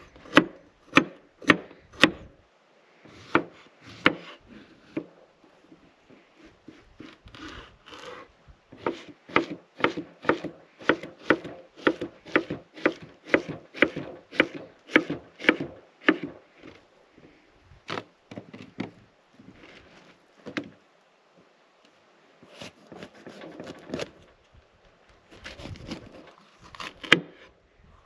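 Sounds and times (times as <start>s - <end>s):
knife scraping board: 6.4s - 14.6s, 22.5s - 24.2s, 25.3s - 27.5s
knife chopping on wooden board: 8.8s - 16.4s.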